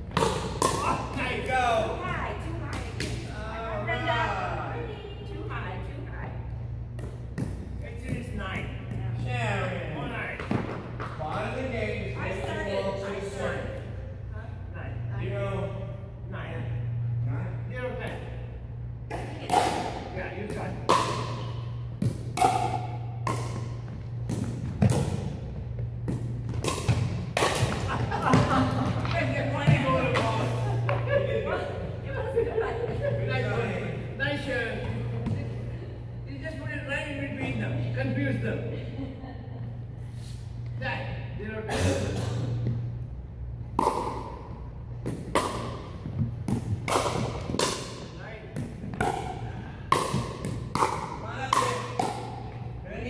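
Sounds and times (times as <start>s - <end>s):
steady low hum: 0.0s - 53.0s
paddles hitting plastic ball: 0.1s - 1.5s, 19.1s - 31.1s, 43.7s - 52.8s
ball bouncing on hardwood floor: 6.9s - 9.2s, 22.0s - 30.3s, 34.8s - 35.6s, 48.6s - 52.6s.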